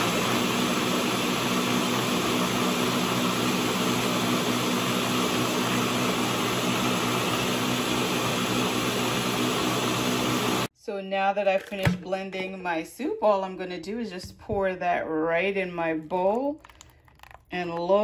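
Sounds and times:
blender running: 0.0s - 10.7s.

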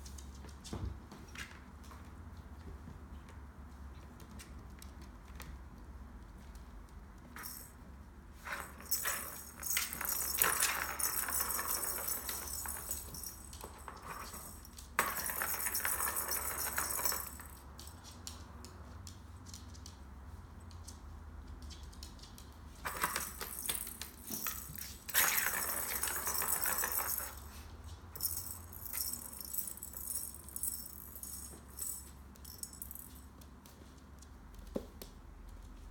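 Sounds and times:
plastic ball rattling in track: 22.8s - 27.4s.

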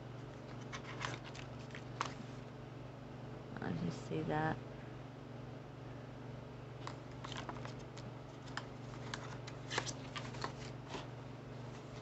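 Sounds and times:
steady low hum: 0.0s - 12.0s
paper rustling: 0.3s - 2.4s, 6.8s - 12.0s.

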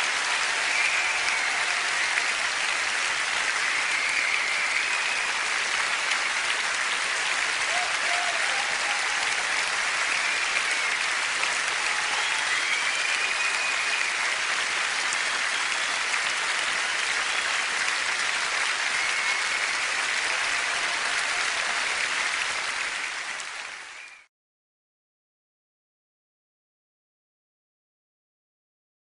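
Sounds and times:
audience applauding: 0.0s - 24.3s
faint whistles: 3.6s - 5.3s, 12.4s - 14.2s, 23.9s - 24.3s.

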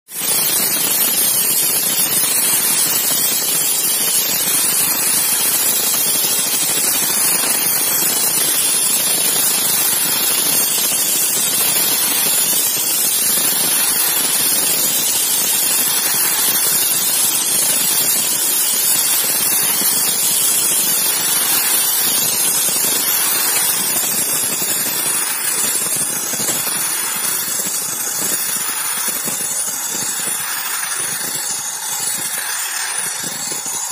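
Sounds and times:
sandblast gun hissing: 20.8s - 33.9s.

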